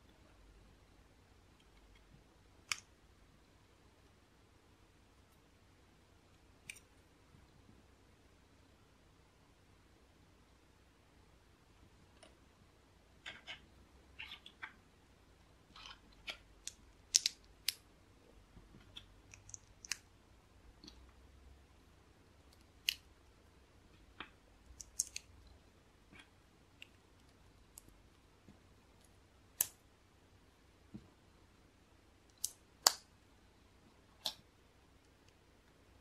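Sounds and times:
plastic bricks clicking together: 15.8 - 17.8.

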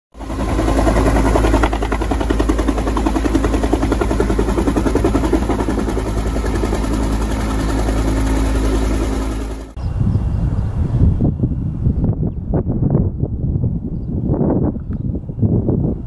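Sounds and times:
helicopter engine hum: 0.2 - 9.8
helicopter rotor blades beating: 0.2 - 9.8.

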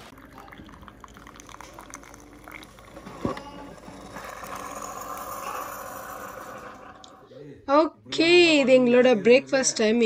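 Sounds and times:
coffee pouring into mug: 0.0 - 7.1.

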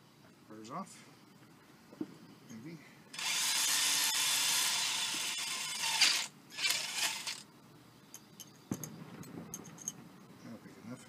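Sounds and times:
power drill boring through metal: 3.2 - 7.4.

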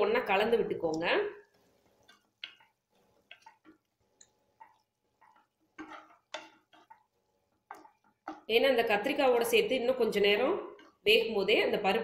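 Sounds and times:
spatula scraping pan: 1.5 - 8.5.

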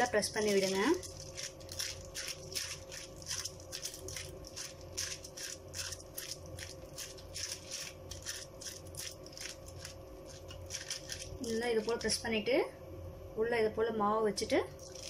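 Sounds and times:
plastic sheet crinkling: 0.0 - 12.3, 14.8 - 15.0
faint steady hum: 0.0 - 15.0
fingers patting dough: 0.4 - 12.1.

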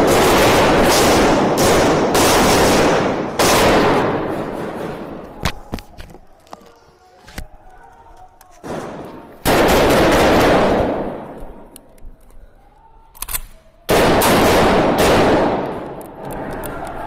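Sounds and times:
close gunfire bursts: 0.0 - 5.1, 9.4 - 11.2, 13.9 - 15.8.

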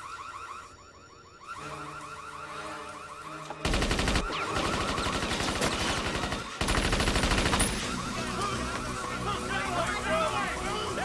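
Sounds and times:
automatic gunfire bursts: 3.6 - 7.8
electronic alarm whooping: 7.8 - 11.0.

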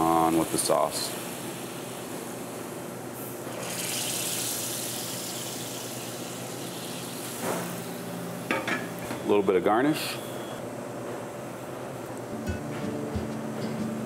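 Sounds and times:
hot sauce hissing: 0.0 - 8.1
kitchen background hiss: 0.0 - 10.5.

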